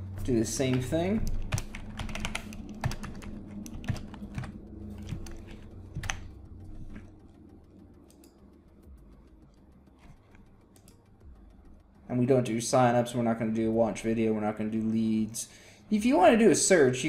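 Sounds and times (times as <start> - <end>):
keyboard keystrokes clicking: 0.6 - 7.1.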